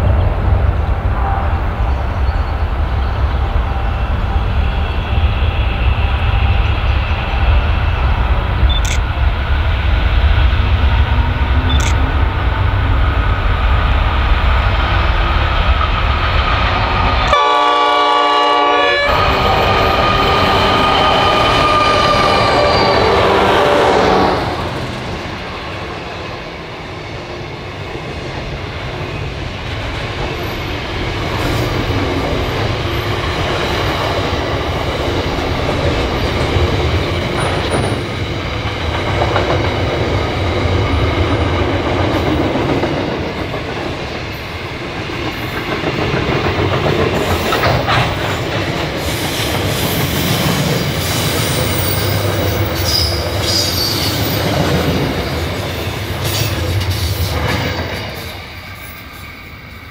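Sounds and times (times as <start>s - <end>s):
train wheels rumbling over rails: 0.0s - 59.9s
high-pitched wheel squeals: 19.0s - 23.7s.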